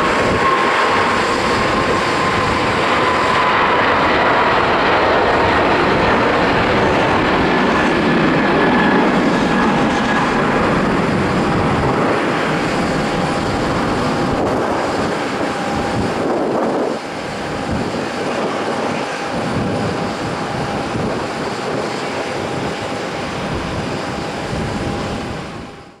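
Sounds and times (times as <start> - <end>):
jet engines at takeoff: 0.0 - 26.0.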